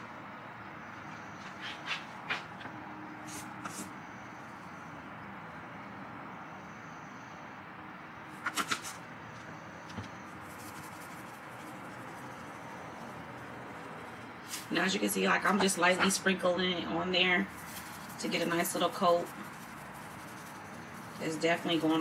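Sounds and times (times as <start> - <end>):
low background hum: 0.0 - 22.0
spice shaker rattling: 10.4 - 13.2, 17.5 - 22.0.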